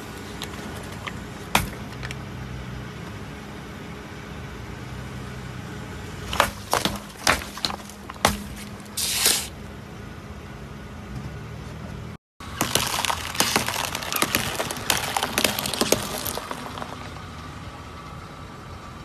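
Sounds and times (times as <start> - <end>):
tyre crushing objects: 6.2 - 9.5, 12.4 - 17.2.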